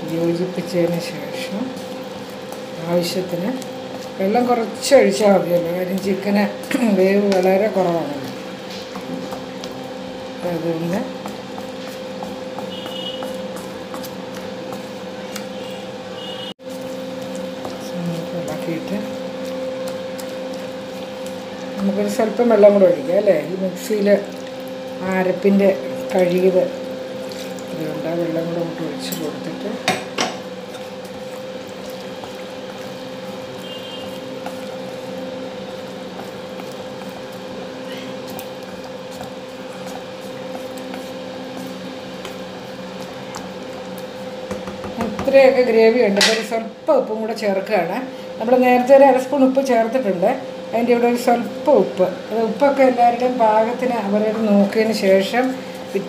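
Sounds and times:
steady electrical hum: 0.0s - 56.0s
spatula stirring thick curry: 11.0s - 44.5s.

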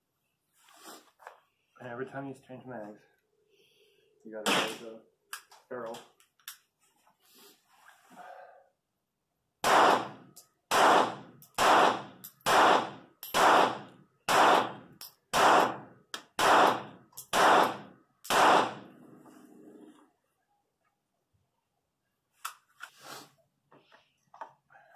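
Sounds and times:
pistol shots: 4.5s - 4.9s, 9.6s - 19.0s.

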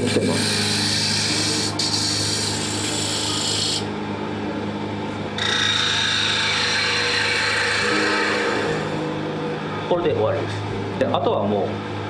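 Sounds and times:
gouge scraping wood: 0.0s - 3.9s, 5.4s - 9.0s
wood lathe humming: 0.0s - 3.9s, 5.4s - 9.1s.

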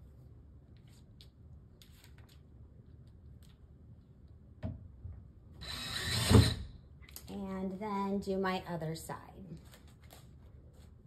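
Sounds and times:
powered screwdriver driving screw: 5.6s - 6.7s.

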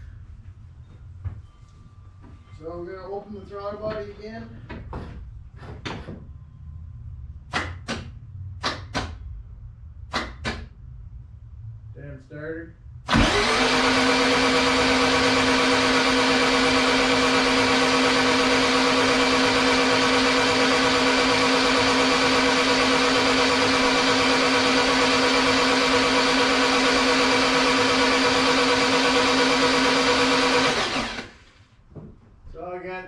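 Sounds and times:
starter motor cranking engine: 13.1s - 31.6s.

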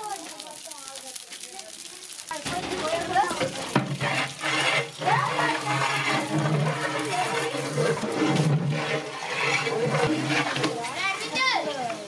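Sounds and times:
spices sizzling in oil: 0.0s - 12.0s
ladle stirring in pot: 2.0s - 11.4s.

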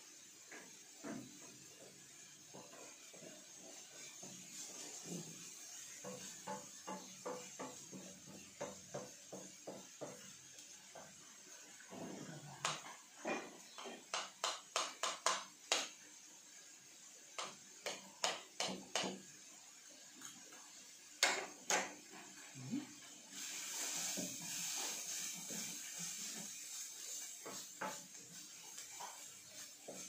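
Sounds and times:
faint frying sizzle: 0.0s - 30.0s
wooden spatula scraping a pan: 0.7s - 15.2s, 23.4s - 30.0s.

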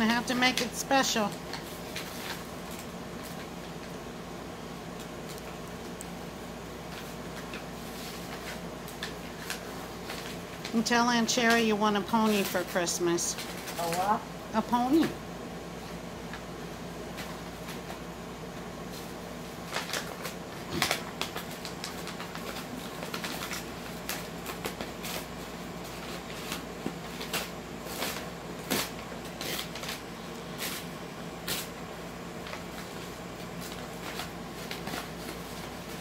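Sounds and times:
puppy chewing paper bag: 0.0s - 12.8s, 18.8s - 36.0s
paper crinkling and ripping: 0.5s - 3.5s, 13.4s - 14.2s, 19.0s - 31.8s, 32.4s - 36.0s.

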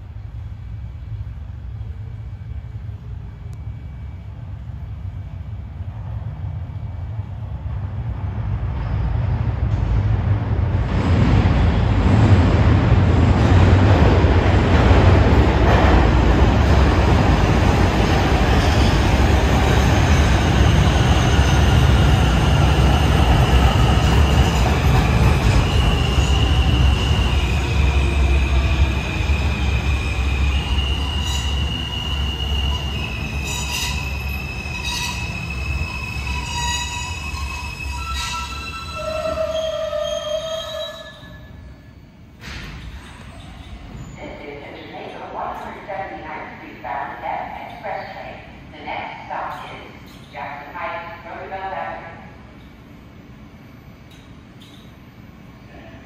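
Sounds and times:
train wheels rumbling on rail: 0.0s - 45.9s
wheel squeal: 30.5s - 41.7s, 42.7s - 44.2s.

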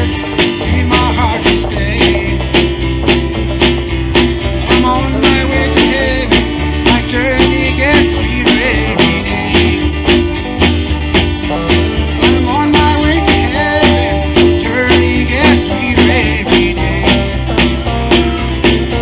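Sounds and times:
drum kit steady beat: 0.0s - 19.0s
electric bass: 0.0s - 19.0s
strummed acoustic guitar: 0.0s - 19.0s
wavering melody line: 11.5s - 17.2s.

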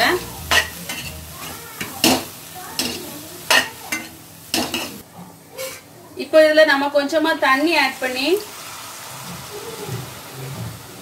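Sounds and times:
spatula scraping pan: 0.0s - 5.0s
faint sizzle: 0.0s - 11.0s.

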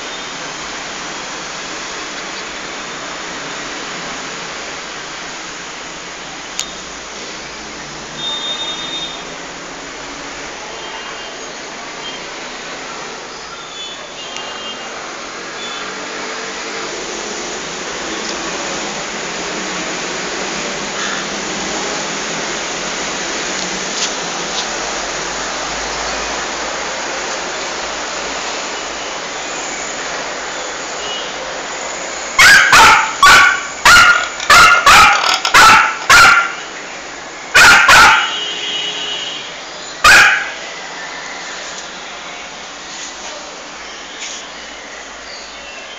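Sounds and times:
small dog barking: 32.4s - 36.6s, 37.6s - 38.4s, 40.0s - 40.6s.

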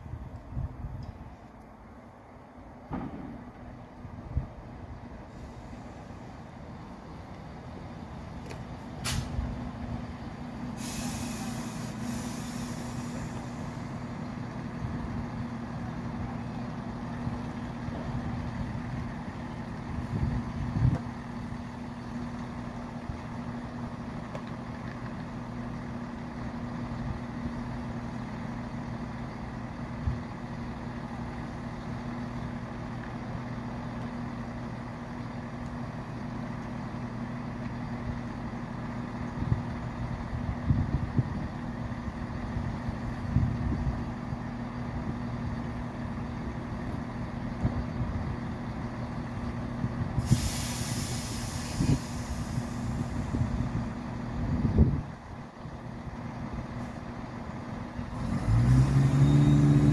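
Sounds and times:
train stopping and idling: 0.0s - 59.9s
brake air hiss: 5.2s - 6.5s, 8.9s - 9.5s, 10.6s - 14.2s, 50.2s - 54.0s.

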